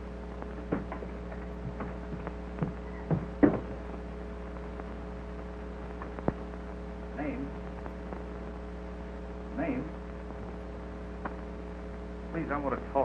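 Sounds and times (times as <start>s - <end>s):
soundtrack hum and hiss: 0.0s - 13.0s.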